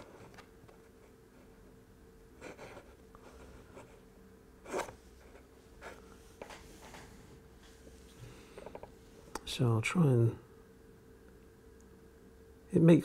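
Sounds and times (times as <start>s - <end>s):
faint steady hum: 0.0s - 13.0s
wooden pieces scraping and tapping: 8.6s - 8.9s.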